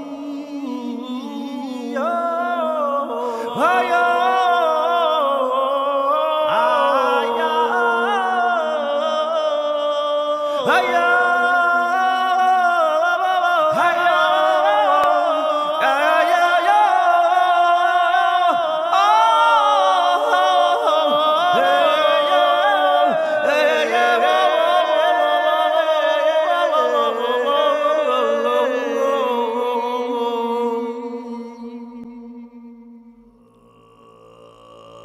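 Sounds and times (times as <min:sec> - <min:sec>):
slow chant-like singing: 0:00.0 - 0:35.0.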